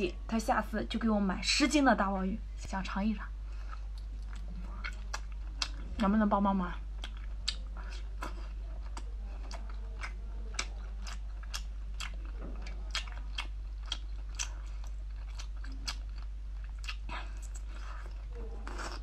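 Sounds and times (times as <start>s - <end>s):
steady low hum: 0.0s - 19.0s
person chewing with wet smacks: 3.6s - 6.2s, 6.8s - 19.0s.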